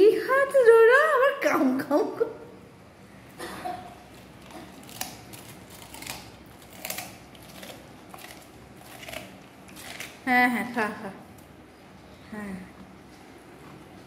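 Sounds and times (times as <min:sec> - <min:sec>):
dog crunching cabbage: 0:03.9 - 0:11.6.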